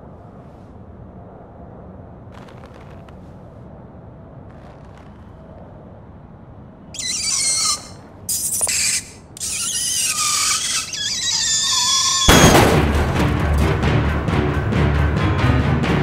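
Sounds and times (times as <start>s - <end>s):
faint squeaks: 6.9s - 12.6s
loud high-pitched squeal: 7.0s - 12.8s.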